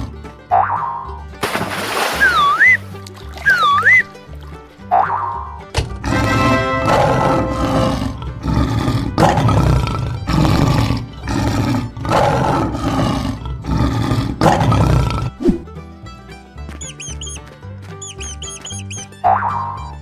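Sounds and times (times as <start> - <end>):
lion roaring: 6.0 - 15.4.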